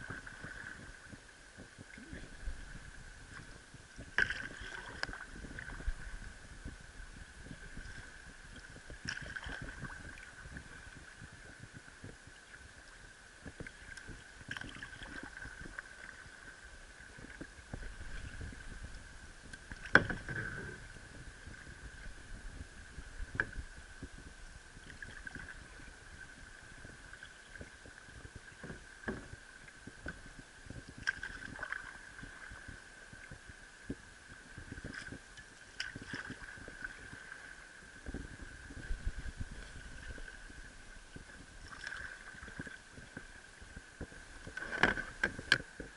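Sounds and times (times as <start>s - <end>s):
paddle splashing in water: 1.9s - 6.2s, 7.5s - 10.9s, 13.6s - 16.4s, 31.0s - 32.7s, 34.9s - 37.6s, 41.2s - 43.3s, 44.4s - 45.9s.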